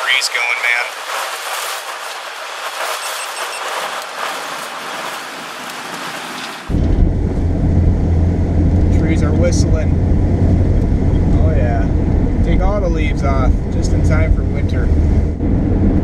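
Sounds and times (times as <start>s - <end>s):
rain hitting windshield: 0.0s - 7.8s
road noise inside car: 6.4s - 16.0s.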